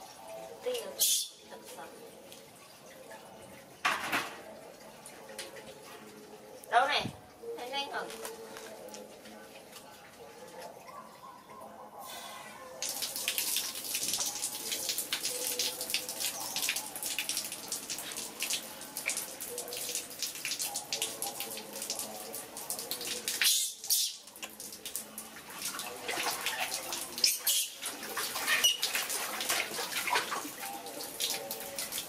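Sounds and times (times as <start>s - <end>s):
thin stream of water running: 0.0s - 32.0s
water splashing in a steel basin: 12.7s - 32.0s.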